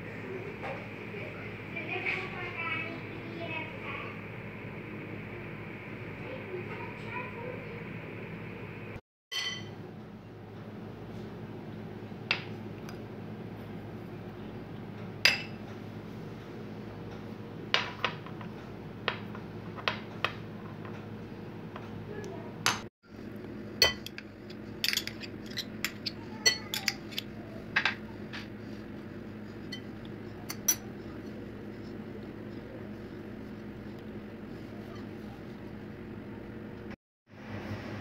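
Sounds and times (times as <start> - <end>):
steady low hum: 0.0 - 19.8, 20.5 - 38.0
clinks against glass bowl: 9.3 - 9.7, 23.8 - 24.2.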